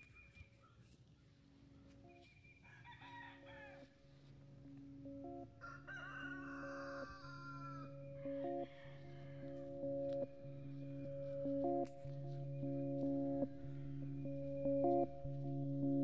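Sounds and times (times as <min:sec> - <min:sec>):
distant rooster crowing: 0:02.6 - 0:03.9, 0:05.6 - 0:09.6
steady held tones: 0:07.8 - 0:16.0.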